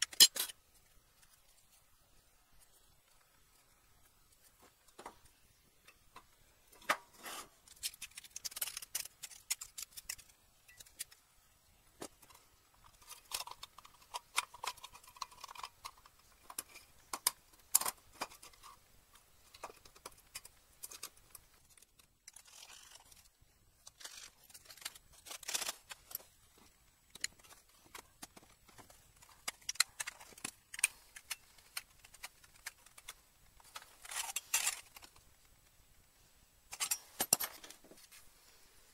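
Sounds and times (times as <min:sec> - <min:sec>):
metal plates clicking and scraping: 0:00.0 - 0:00.6, 0:36.7 - 0:37.8.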